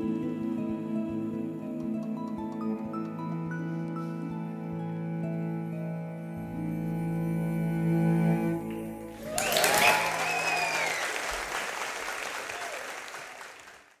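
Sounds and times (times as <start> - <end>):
audience applause: 9.1 - 14.0
cheering and whistles: 9.2 - 13.8.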